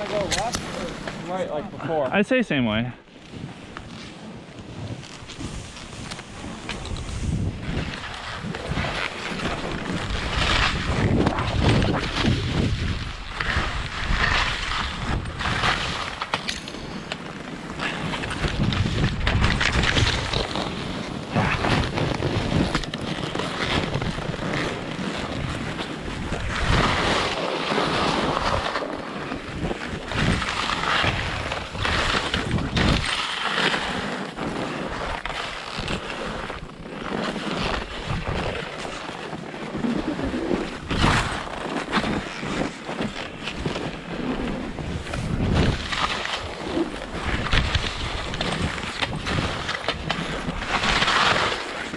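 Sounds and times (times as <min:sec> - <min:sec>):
skis scraping through snow: 0:00.0 - 0:51.9
wind buffeting microphone: 0:06.8 - 0:16.0, 0:43.9 - 0:50.8.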